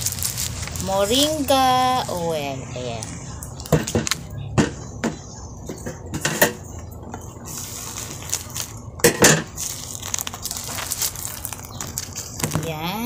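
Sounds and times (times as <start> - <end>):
plastic bag rustling: 0.0 - 4.3, 7.1 - 13.0.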